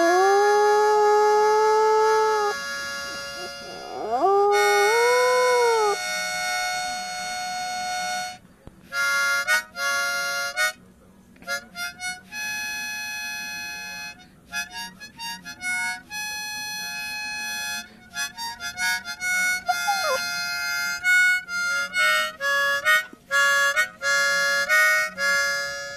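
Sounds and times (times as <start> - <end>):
dog howling: 0.0 - 2.6, 3.2 - 6.0, 19.7 - 20.3
harmonica playing chords: 1.8 - 10.8, 11.5 - 25.9
held musical chord: 19.6 - 20.6.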